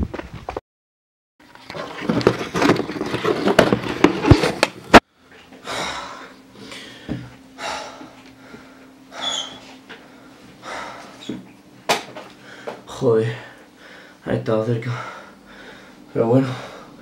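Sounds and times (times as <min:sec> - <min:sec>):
young man panting: 0:05.6 - 0:11.4, 0:14.8 - 0:17.0.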